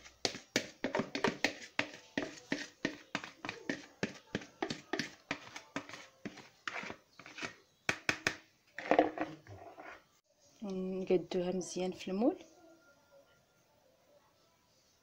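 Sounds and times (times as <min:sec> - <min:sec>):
scraping on plastic bowl: 0:00.3 - 0:07.6, 0:08.8 - 0:10.1.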